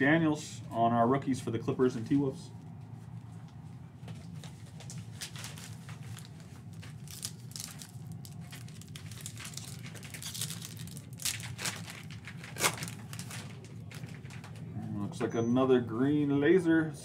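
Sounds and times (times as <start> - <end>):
foil wrapper crinkling: 4.2 - 14.6
foil pack being torn open: 4.8 - 14.6.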